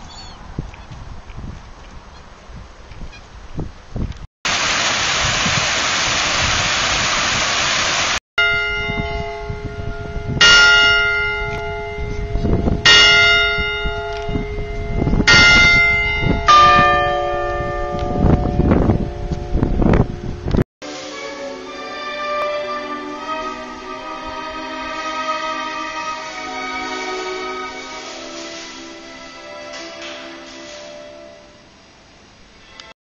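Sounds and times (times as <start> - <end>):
loud steady rushing noise: 4.5 - 8.2
tower bells ringing: 8.4 - 20.4, 21.4 - 32.0.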